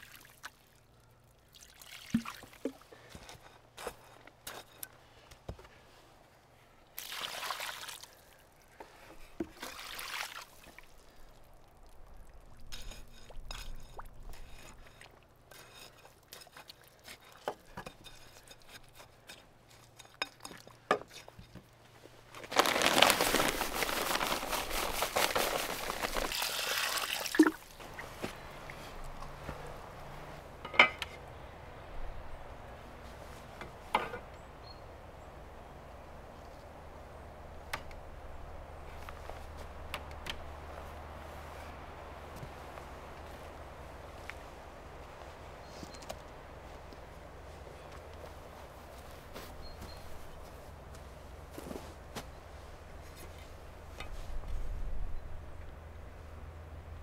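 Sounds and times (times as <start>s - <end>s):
water pouring onto concrete: 1.5s - 2.6s, 7.0s - 8.3s, 9.6s - 12.8s, 22.4s - 27.8s.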